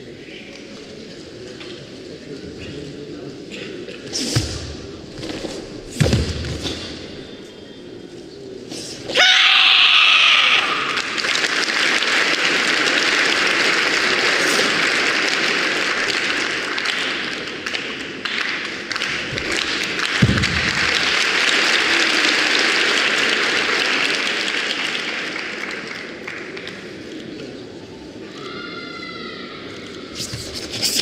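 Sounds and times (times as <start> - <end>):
crowd applauding: 10.4 - 27.3.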